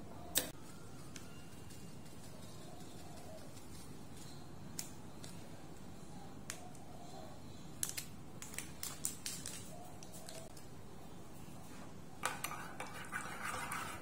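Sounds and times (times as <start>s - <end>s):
foil sachet crinkling and clicking: 7.8s - 10.6s.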